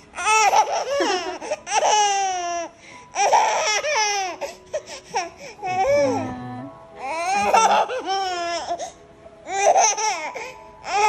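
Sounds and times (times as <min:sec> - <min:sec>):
baby laughing: 0:00.4 - 0:02.2.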